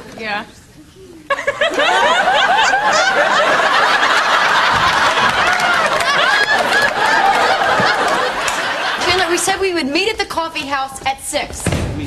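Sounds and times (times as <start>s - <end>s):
audience laughing: 1.3s - 9.8s.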